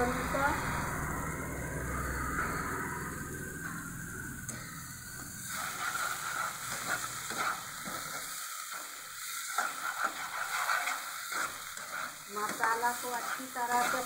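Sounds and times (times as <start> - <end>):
masala sizzling in oil: 0.0 - 14.0
spatula scraping pan: 5.4 - 14.0.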